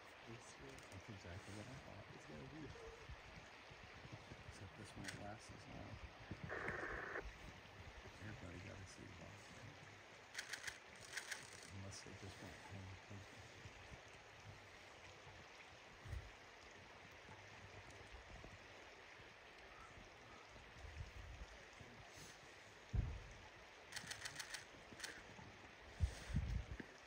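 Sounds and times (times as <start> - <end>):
flowing river hiss: 0.0 - 27.0
quick run of clicks: 10.4 - 11.8, 24.0 - 25.2.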